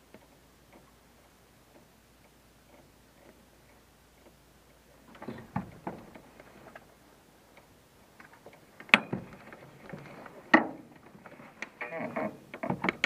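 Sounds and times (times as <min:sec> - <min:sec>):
light knocks and clicks: 0:05.1 - 0:06.9.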